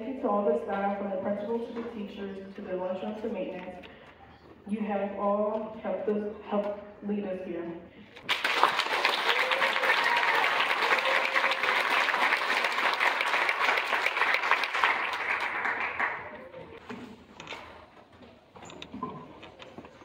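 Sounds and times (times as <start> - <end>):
audience applauding: 8.3 - 16.8.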